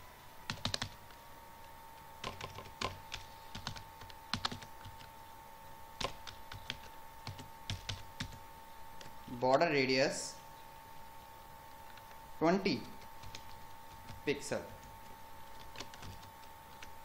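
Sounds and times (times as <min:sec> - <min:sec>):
keyboard typing: 0:00.5 - 0:05.1, 0:06.0 - 0:08.4, 0:12.8 - 0:17.0.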